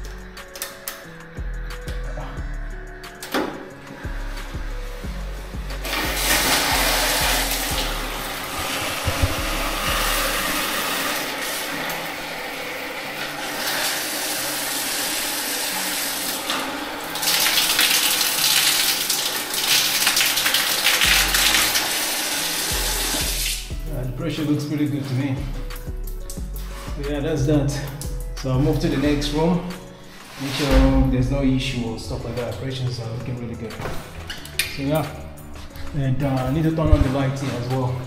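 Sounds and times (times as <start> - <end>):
water rushing from plumbing: 3.9 - 23.8.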